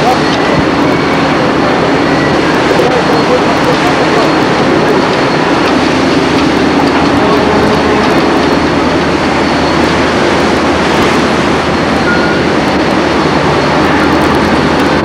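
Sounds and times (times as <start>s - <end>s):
loud winch machinery: 0.0s - 15.0s
faint high whine: 7.2s - 15.0s.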